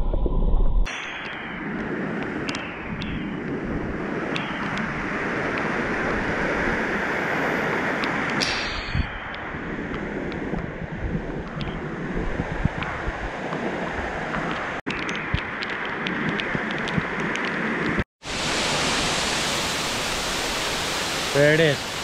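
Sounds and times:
waterfall rushing: 18.2 - 22.0.

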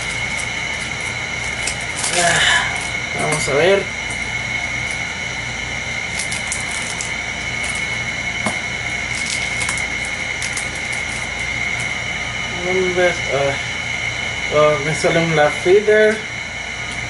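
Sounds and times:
foil pack tearing: 0.0 - 3.6, 6.0 - 8.0, 8.9 - 12.0
foil pack crinkling: 0.0 - 5.1, 6.0 - 8.1, 8.8 - 12.0
background hum: 0.0 - 17.0
high whine: 0.0 - 17.0.

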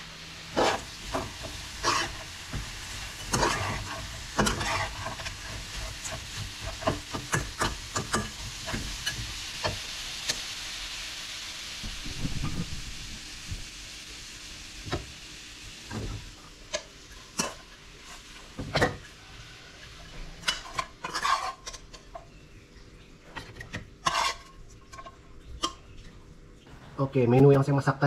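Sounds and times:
light sizzle: 0.0 - 28.0
metal utensil scraping a pan: 0.5 - 9.3, 20.4 - 22.2, 23.3 - 25.8.

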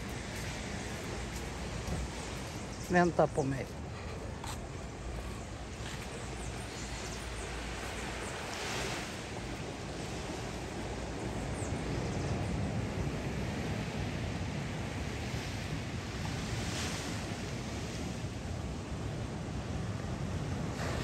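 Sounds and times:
surf washing onto beach: 4.6 - 21.0.

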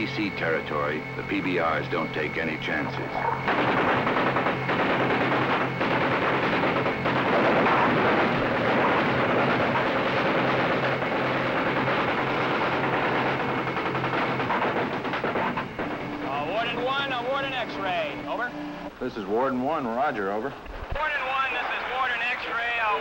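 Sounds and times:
low steady hum: 0.0 - 20.9
machine-gun fire: 2.8 - 18.2.

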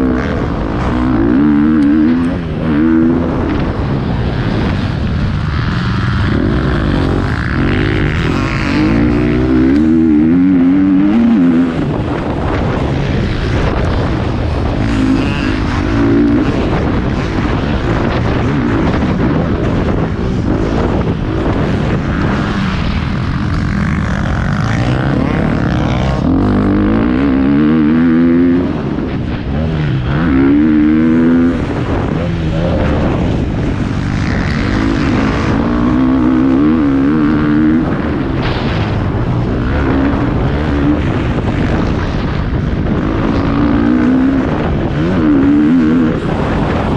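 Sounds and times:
dirt bike engine revving: 0.0 - 46.9.

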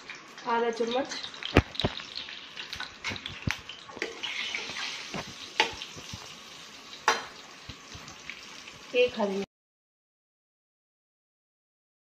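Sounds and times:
ghee sizzling in pan: 0.0 - 9.5.

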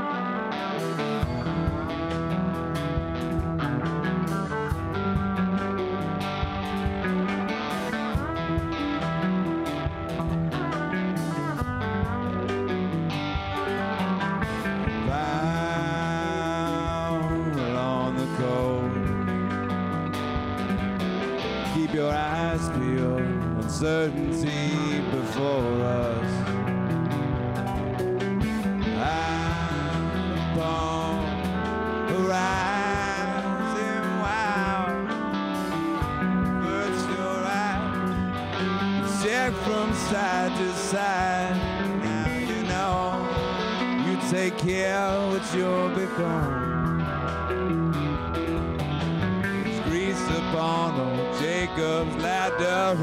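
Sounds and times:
guitar string bends: 0.0 - 53.0
live rock band playing: 0.0 - 53.0.

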